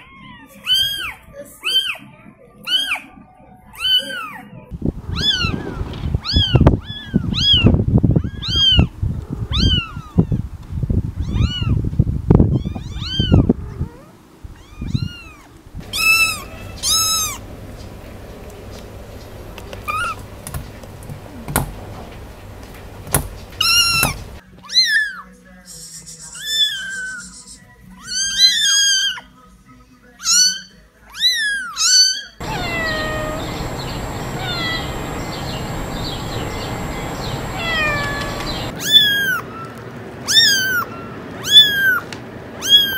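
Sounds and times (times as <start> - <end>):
kittens mewing: 0.0 - 10.4, 12.6 - 18.0, 19.6 - 20.4, 23.5 - 25.3, 30.2 - 42.9
adult cat meowing: 12.5 - 17.4, 30.2 - 35.0, 37.5 - 39.4, 40.3 - 42.9.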